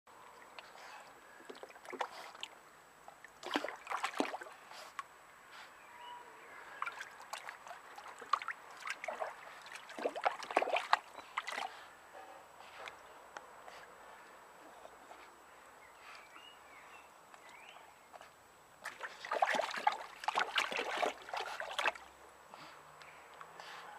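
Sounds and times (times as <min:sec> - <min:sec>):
dog splashing in water: 0:03.4 - 0:04.6, 0:06.8 - 0:11.7, 0:18.8 - 0:22.1.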